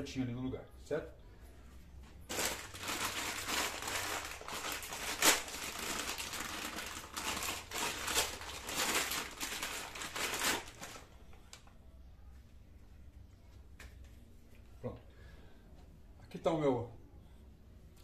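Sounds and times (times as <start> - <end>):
plastic bag crinkling: 2.2 - 11.2.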